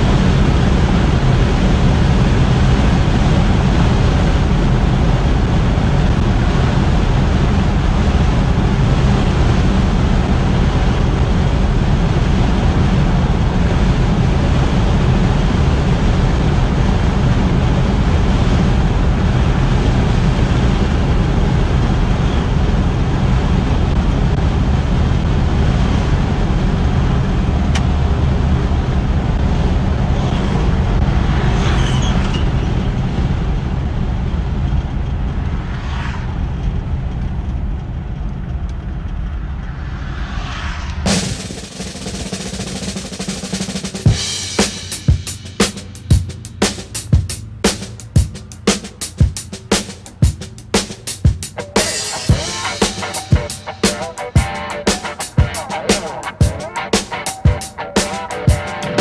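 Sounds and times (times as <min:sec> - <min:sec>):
car cabin cruising rumble: 0:00.0 - 0:31.4, 0:44.0 - 0:53.8.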